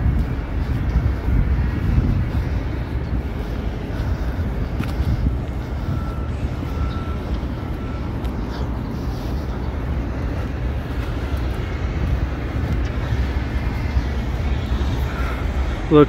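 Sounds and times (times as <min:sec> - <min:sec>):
diesel train engine rumble: 0:00.0 - 0:16.0
faint high whine: 0:01.3 - 0:16.0.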